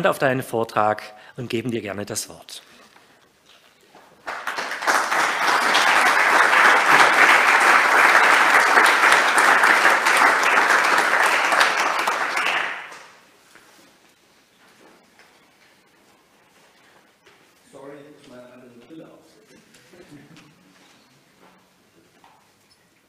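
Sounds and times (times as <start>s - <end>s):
audience applauding: 4.2s - 13.2s.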